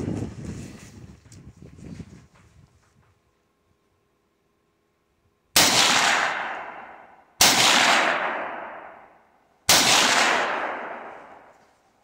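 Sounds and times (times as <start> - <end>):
gunshot echo: 5.6 - 11.5
rifle shots: 5.6 - 11.5.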